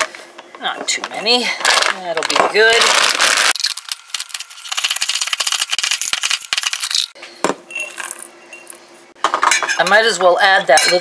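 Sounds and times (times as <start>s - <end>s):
nut chopper clicking and rattling: 1.7s - 7.2s
spoon clinking in metal bowl: 10.8s - 11.0s.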